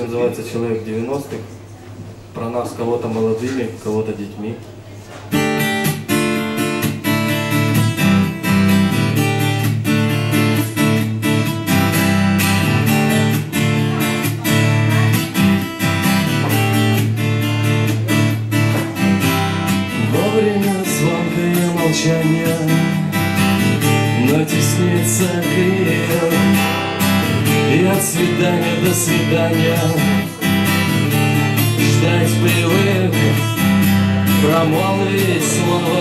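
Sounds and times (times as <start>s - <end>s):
acoustic guitar strumming: 5.3s - 36.0s
person singing: 19.8s - 23.1s, 24.0s - 30.4s, 31.4s - 33.6s, 34.2s - 36.0s.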